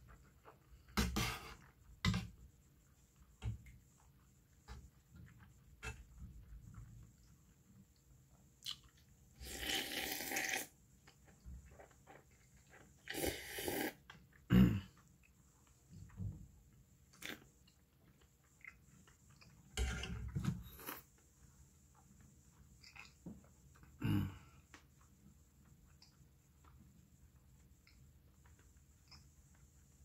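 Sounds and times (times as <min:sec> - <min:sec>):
chewing and mouth clicks: 0:08.6 - 0:09.1, 0:17.1 - 0:19.7, 0:22.8 - 0:24.0
person slurping soup: 0:09.4 - 0:10.7, 0:13.0 - 0:14.1.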